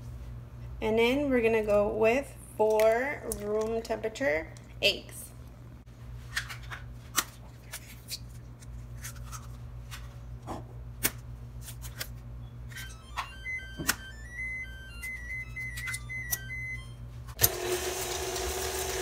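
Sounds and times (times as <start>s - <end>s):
steady low hum: 0.0s - 17.4s
short high beeping melody: 12.7s - 17.3s.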